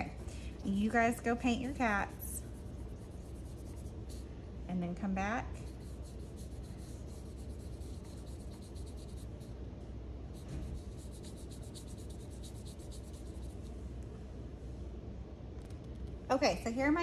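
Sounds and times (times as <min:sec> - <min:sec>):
paintbrush stroking paper: 0:00.0 - 0:04.3, 0:05.6 - 0:09.5, 0:10.4 - 0:13.7
low room hum: 0:00.0 - 0:17.0.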